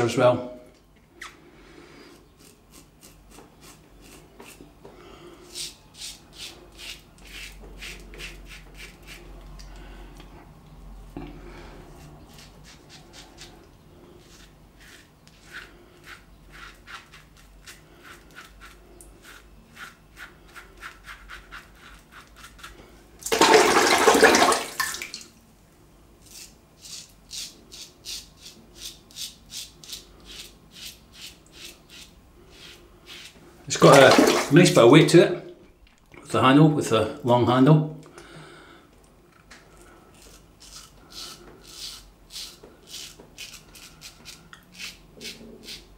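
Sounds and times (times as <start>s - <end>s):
razor scraping stubble: 2.2s - 4.7s, 5.5s - 9.4s, 11.9s - 22.8s, 26.2s - 34.1s, 40.1s - 45.9s
running water rush: 33.8s - 34.7s.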